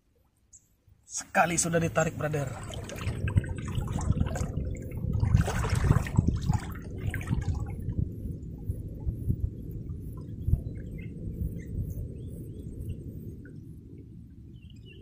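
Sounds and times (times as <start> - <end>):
water sloshing around wading person: 2.1 - 8.0.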